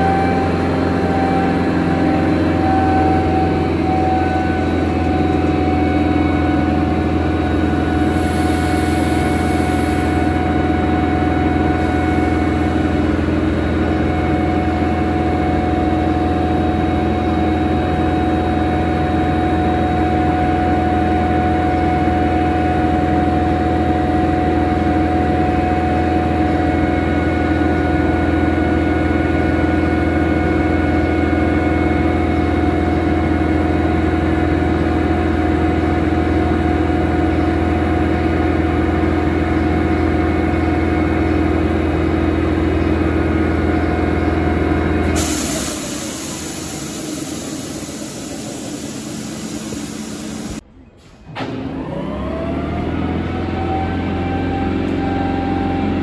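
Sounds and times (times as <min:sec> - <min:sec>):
air compressor droning: 0:04.0 - 0:15.2, 0:45.0 - 0:50.6
short air hiss: 0:45.2 - 0:50.6.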